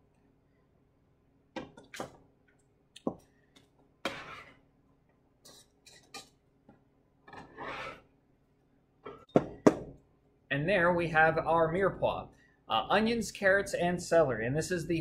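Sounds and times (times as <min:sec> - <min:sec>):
scraper scraping cutting board: 0:04.0 - 0:04.6, 0:07.4 - 0:08.1.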